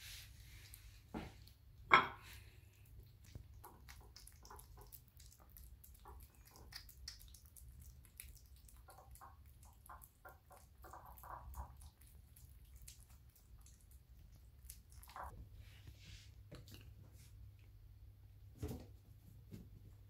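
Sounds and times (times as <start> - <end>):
kittens chewing wet food: 0.2 - 18.2.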